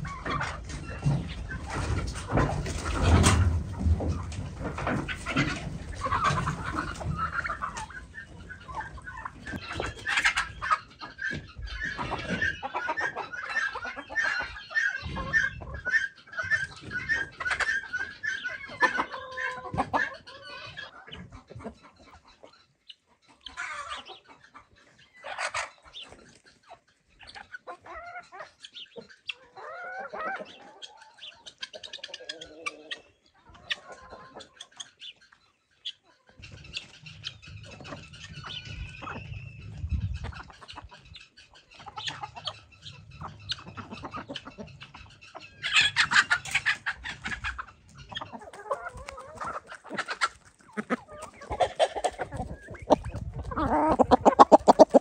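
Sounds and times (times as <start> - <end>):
chickens clucking: 0.0 - 55.0
knocks and clatter: 0.6 - 7.2.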